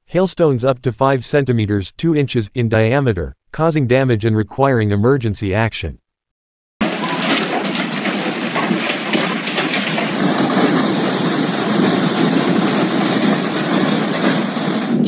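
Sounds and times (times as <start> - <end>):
heavy hail pelting down: 6.8 - 15.0.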